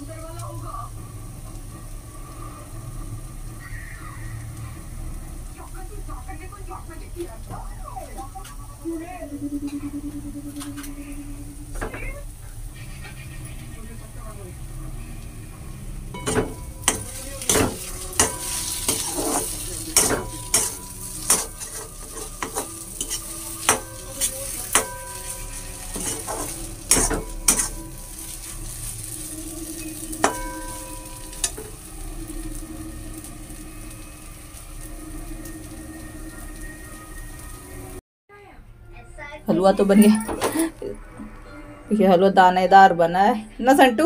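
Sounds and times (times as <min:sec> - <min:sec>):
ghee sizzling: 0:00.0 - 0:38.0
metal spoon scraping a wok: 0:12.6 - 0:13.7, 0:16.2 - 0:32.5
spoon clanking against pan: 0:16.2 - 0:28.5, 0:29.8 - 0:31.8.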